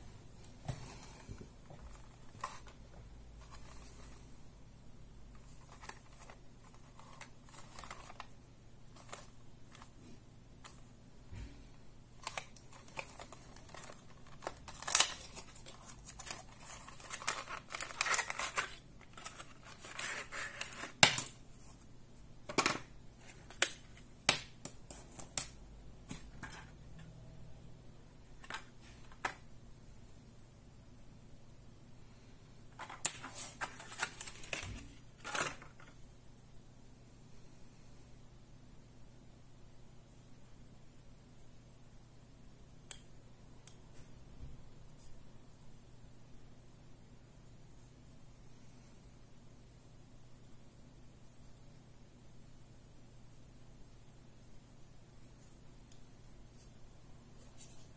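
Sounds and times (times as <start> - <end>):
cardboard and plastic rustling: 0.6 - 4.3, 5.3 - 8.3, 8.9 - 10.0, 12.2 - 21.8, 32.8 - 36.0.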